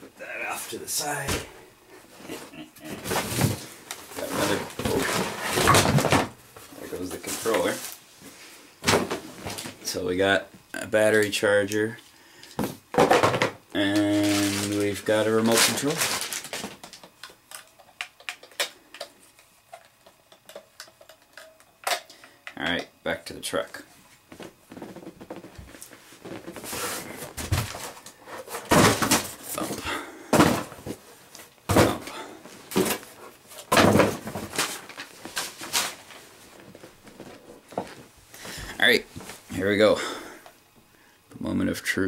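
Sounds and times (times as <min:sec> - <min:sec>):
packing rustling: 0:13.9 - 0:17.1
plastic clicks and crinkles: 0:13.9 - 0:22.6.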